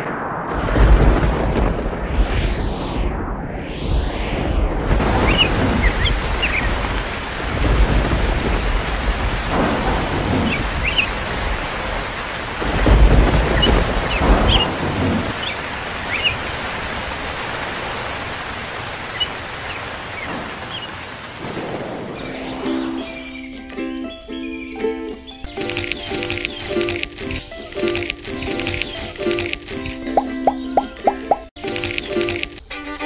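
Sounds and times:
heavy rain: 0.0s - 2.7s, 4.9s - 23.8s, 25.5s - 30.0s
thunder rumbling: 0.0s - 23.6s.

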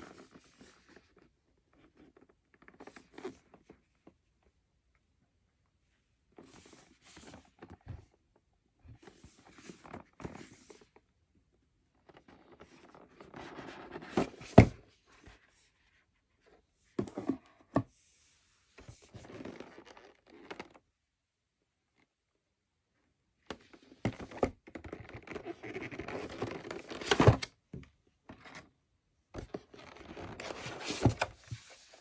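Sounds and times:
cardboard rustling and scraping: 6.4s - 8.2s, 8.9s - 11.1s, 12.0s - 17.9s, 23.8s - 27.5s, 29.4s - 32.0s.

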